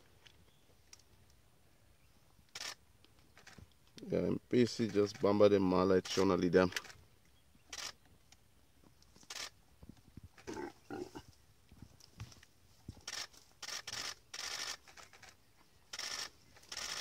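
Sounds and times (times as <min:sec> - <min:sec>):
short raspy animal noises: 0:10.4 - 0:11.4.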